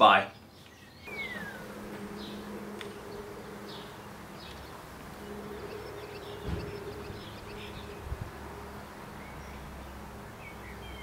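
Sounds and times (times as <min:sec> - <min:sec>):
faint bird chirps: 0:00.2 - 0:11.0
bumblebee buzzing: 0:01.1 - 0:11.0
low thump: 0:06.2 - 0:07.3.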